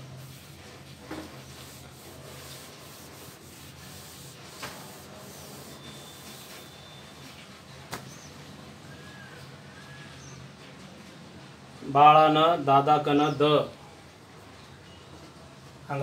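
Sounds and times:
eraser rubbing on whiteboard: 0:00.0 - 0:06.8.

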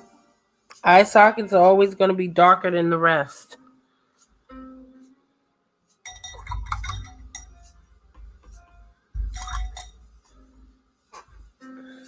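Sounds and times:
paintbrush rattling in glass jar: 0:06.0 - 0:07.7, 0:09.2 - 0:10.0.

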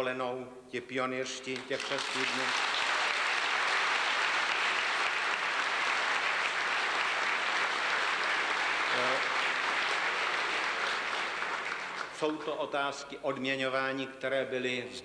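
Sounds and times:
audience applauding: 0:01.5 - 0:12.5.

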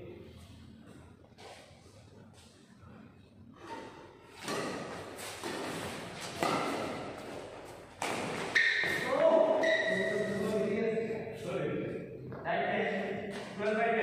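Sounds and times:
rackets hitting shuttlecock: 0:04.3 - 0:10.0.

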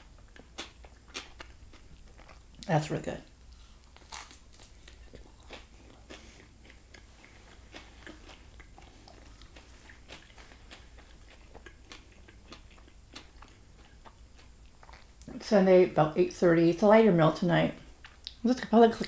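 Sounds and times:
person chewing food: 0:00.0 - 0:02.7, 0:03.3 - 0:15.3, 0:18.0 - 0:18.4.

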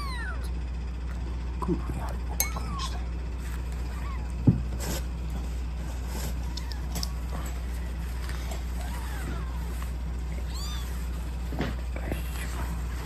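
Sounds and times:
kitten mewing: 0:00.0 - 0:00.5, 0:03.8 - 0:04.4, 0:08.7 - 0:11.1.

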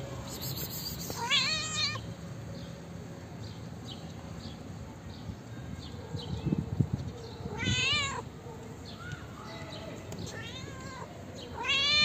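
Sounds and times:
cat meowing: 0:01.1 - 0:02.0, 0:07.5 - 0:08.2, 0:10.3 - 0:12.0.

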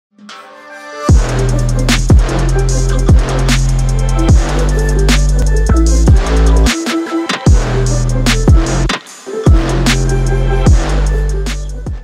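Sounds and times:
electronic music with heavy bass: 0:01.0 - 0:12.0
hard drum hits: 0:01.1 - 0:02.5.

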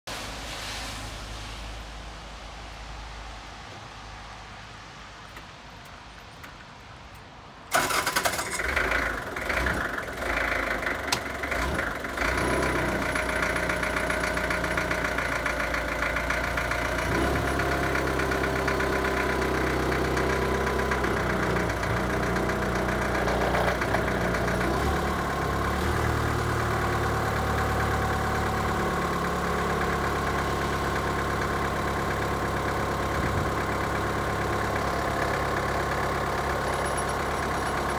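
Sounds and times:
diesel forklift engine idling: 0:07.7 - 0:37.9.

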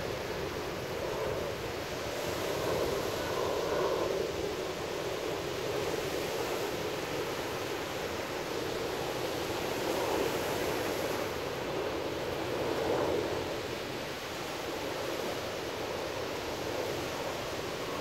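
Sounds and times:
surf washing on sandy beach: 0:00.0 - 0:18.0.

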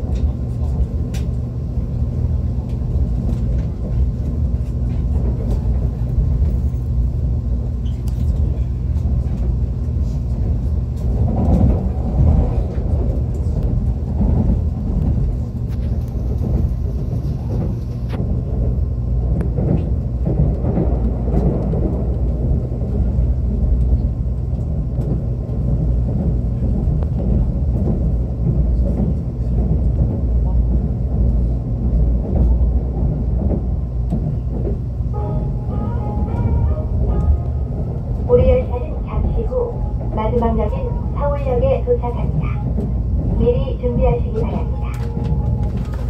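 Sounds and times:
train running rumble and hum: 0:00.0 - 0:46.0.

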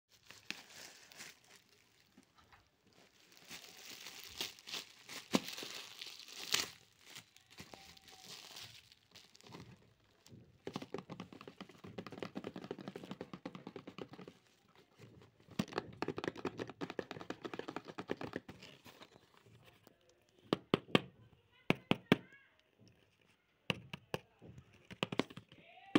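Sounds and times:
plastic packaging crinkling: 0:00.1 - 0:20.4.

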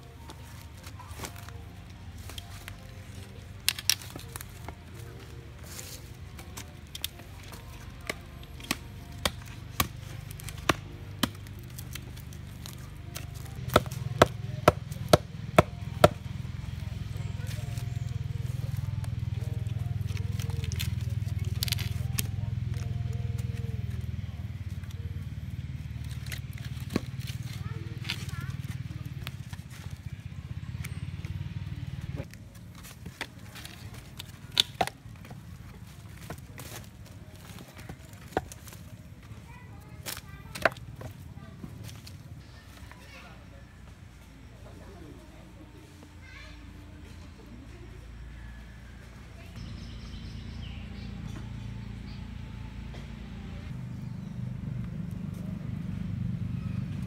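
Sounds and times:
low engine-like drone: 0:00.0 - 0:38.2, 0:46.7 - 0:57.0
wooden logs knocking together: 0:02.2 - 0:16.4, 0:26.0 - 0:30.0, 0:32.1 - 0:39.3, 0:40.0 - 0:41.2
wooden stick pounding stakes: 0:08.0 - 0:16.3, 0:33.2 - 0:35.4.

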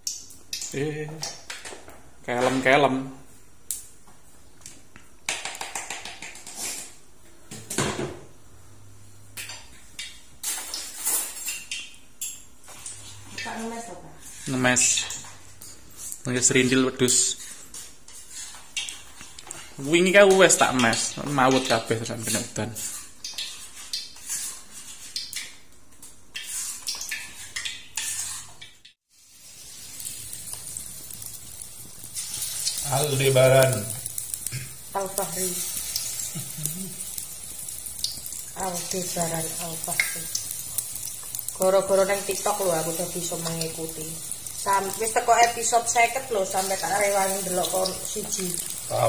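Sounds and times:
dishes knocking and clattering: 0:07.5 - 0:08.3
batter sizzling in hot oil: 0:09.4 - 0:49.0
spoon scraping batter in bowl: 0:22.8 - 0:25.2, 0:26.3 - 0:28.6.

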